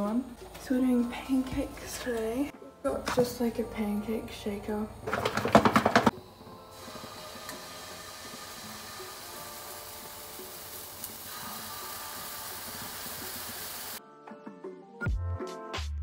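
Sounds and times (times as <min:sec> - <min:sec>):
batter sizzling in frying pan: 0:06.7 - 0:14.0.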